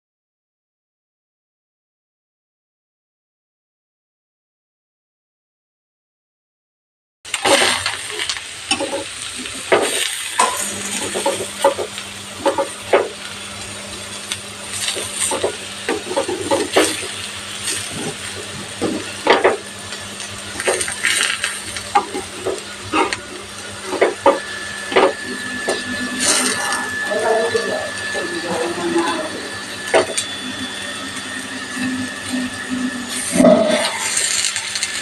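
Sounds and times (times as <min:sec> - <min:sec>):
food sizzling in oil: 0:07.3 - 0:35.0
spatula scraping and tapping pan: 0:07.6 - 0:13.2, 0:14.7 - 0:20.0, 0:20.6 - 0:26.7.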